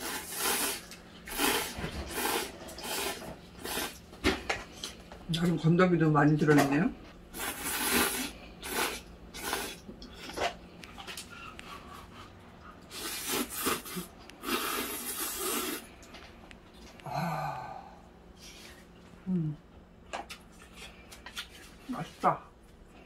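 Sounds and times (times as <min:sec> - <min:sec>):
person slurping noodles: 0:00.0 - 0:04.0, 0:07.3 - 0:10.4, 0:12.8 - 0:16.0
person humming: 0:17.0 - 0:18.0, 0:19.2 - 0:19.6.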